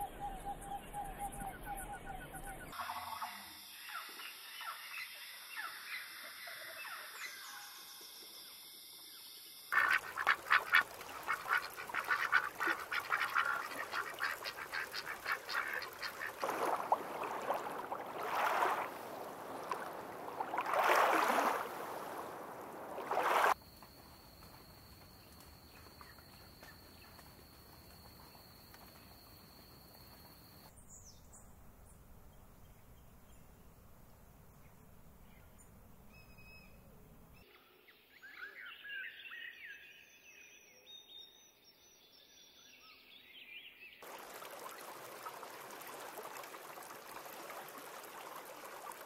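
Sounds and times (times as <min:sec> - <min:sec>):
faint bird calls: 0:09.7 - 0:18.0
ducks calling: 0:09.8 - 0:20.0.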